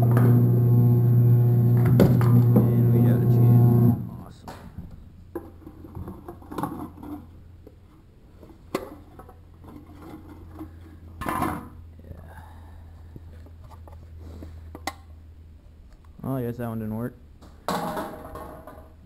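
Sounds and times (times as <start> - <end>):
steady low hum: 0.0 - 6.0.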